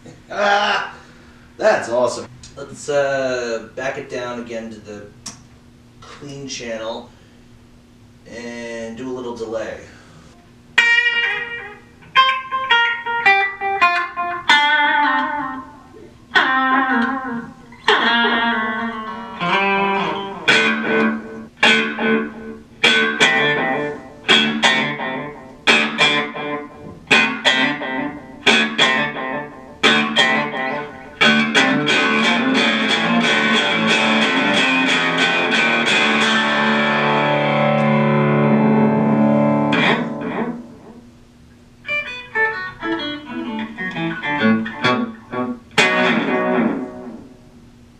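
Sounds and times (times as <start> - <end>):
electric guitar with delay: 10.8 - 41.1, 41.8 - 47.6.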